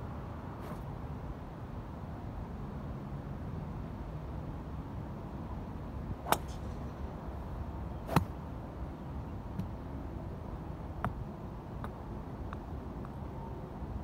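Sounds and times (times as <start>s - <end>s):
steady outdoor hiss: 0.0s - 14.0s
golf club striking balls: 8.1s - 8.4s.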